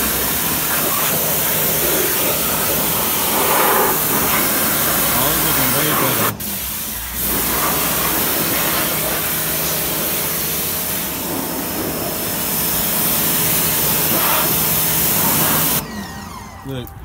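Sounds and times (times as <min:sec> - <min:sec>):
pressure washer spraying water: 0:00.0 - 0:16.0.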